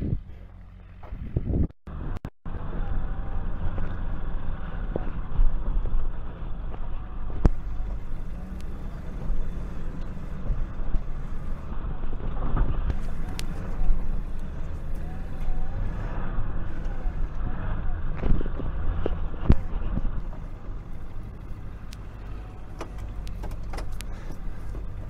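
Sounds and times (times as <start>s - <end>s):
truck engine running: 0.0s - 25.0s.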